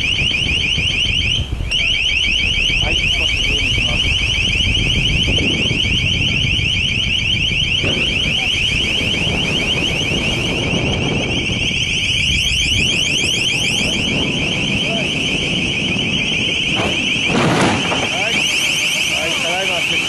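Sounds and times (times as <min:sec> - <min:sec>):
piercing electronic warbling alarm: 0:00.0 - 0:20.0.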